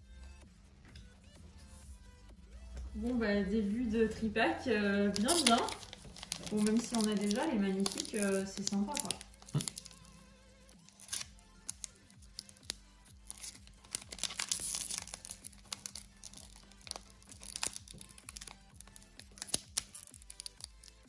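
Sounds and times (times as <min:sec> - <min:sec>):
foil wrappers crinkling: 0:05.0 - 0:21.0.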